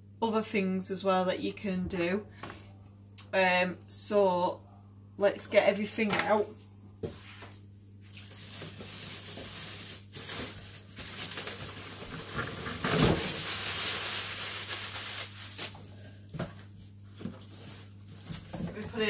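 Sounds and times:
packaging rustling and scraping: 7.1 - 19.0.

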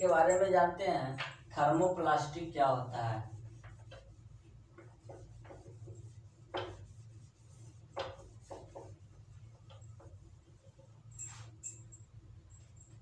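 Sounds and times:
rubbing strokes on whiteboard: 2.9 - 11.6.

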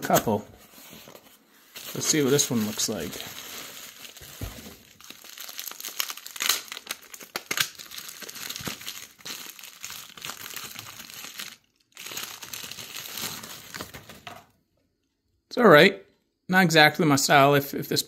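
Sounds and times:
packaging crinkling: 1.0 - 14.5.

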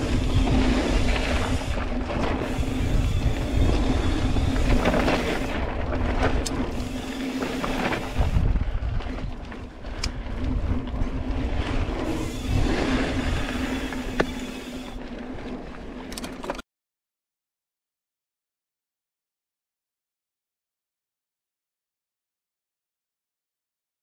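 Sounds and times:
wind buffeting microphone: 0.0 - 15.5
bike rattling: 0.0 - 16.6
tyres rolling on dirt: 0.0 - 16.6.

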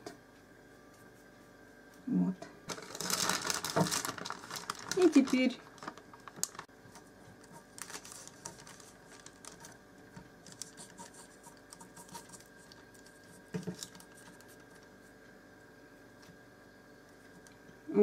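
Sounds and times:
fingers scratching on pastry: 7.3 - 9.8, 10.5 - 15.2.

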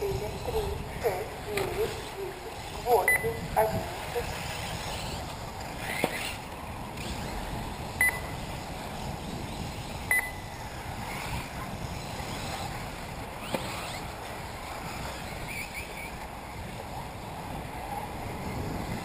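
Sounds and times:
electric rc cars running: 0.0 - 19.0
short high electronic beeps: 3.1 - 3.4, 8.0 - 8.3, 10.1 - 10.5.

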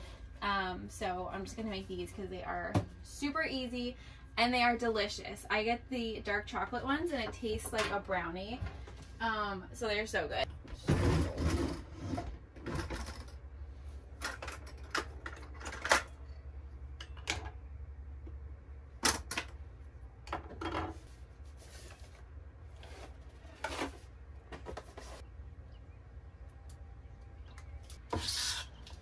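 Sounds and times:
low steady hum: 0.0 - 29.0
drawer opening: 10.8 - 13.3.

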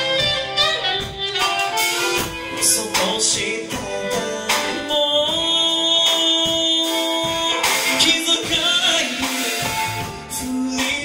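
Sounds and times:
saxophone: 0.0 - 8.3
drums: 0.0 - 11.0
electric guitar: 0.0 - 11.0
man singing into a microphone: 2.5 - 11.0.

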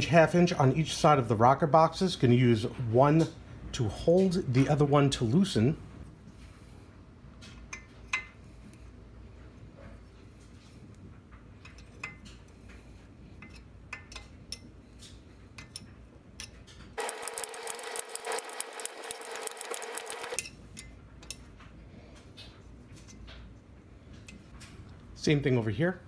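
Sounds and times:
wrenches clicking and tapping: 15.6 - 21.4
rapid dense metallic clicking: 17.0 - 20.4.

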